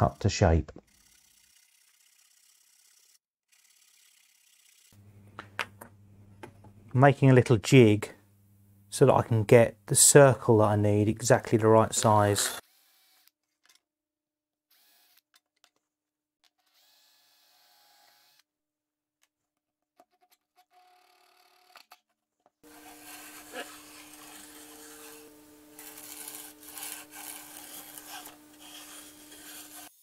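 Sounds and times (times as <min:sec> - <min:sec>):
pencil scratching on plywood: 0:22.6 - 0:30.0
low steady hum: 0:22.7 - 0:29.5.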